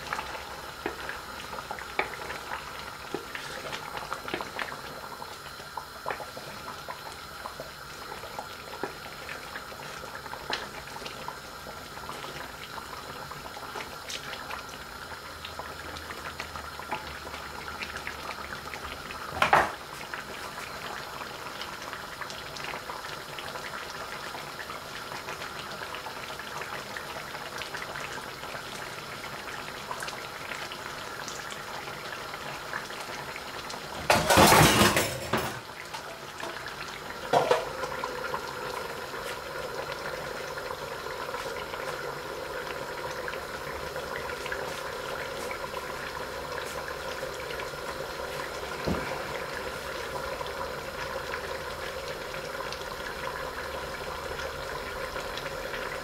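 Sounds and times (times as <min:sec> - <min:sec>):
metal lid clattering on pan: 0:34.0 - 0:35.6.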